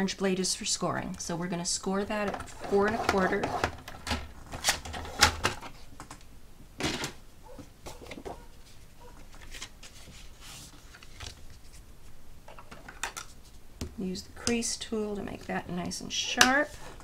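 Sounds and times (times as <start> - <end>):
paper rustling and scraping: 7.9 - 11.8, 16.6 - 17.0.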